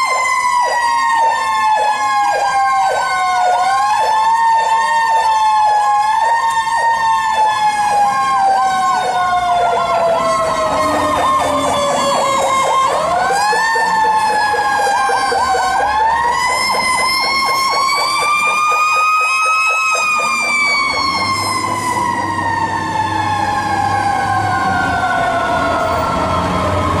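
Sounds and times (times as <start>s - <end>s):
mechanical siren wailing: 0.0s - 27.0s
siren yelping rapidly: 0.0s - 27.0s.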